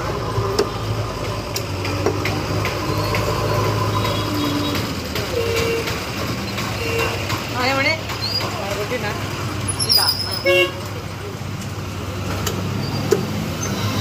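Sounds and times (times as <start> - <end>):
vehicle engine idling: 0.0 - 12.2
street noise: 0.0 - 14.0.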